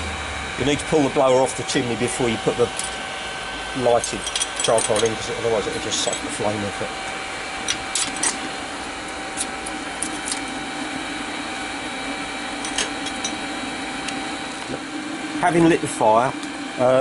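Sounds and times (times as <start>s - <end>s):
blower fan motor running: 0.0s - 17.0s
shovel and charcoal clinks: 4.1s - 5.2s.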